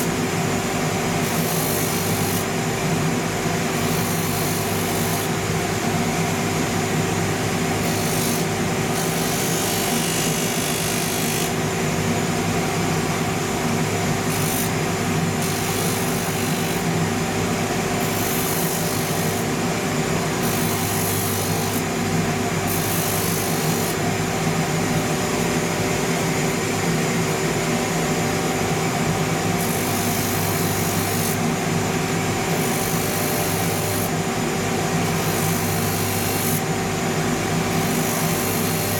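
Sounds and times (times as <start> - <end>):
rotary sanding wheel running: 1.2 - 2.6, 3.7 - 5.5, 7.5 - 11.7, 14.2 - 17.0, 17.8 - 19.6, 20.3 - 21.9, 22.6 - 24.0, 29.4 - 38.9.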